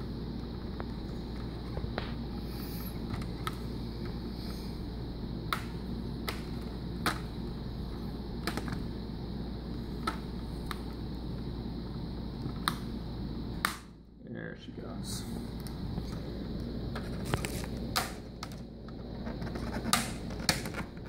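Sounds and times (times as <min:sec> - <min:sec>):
steady low hum: 0:00.0 - 0:21.0
plastic clips snapping: 0:05.5 - 0:07.3, 0:08.4 - 0:08.8, 0:17.2 - 0:18.6.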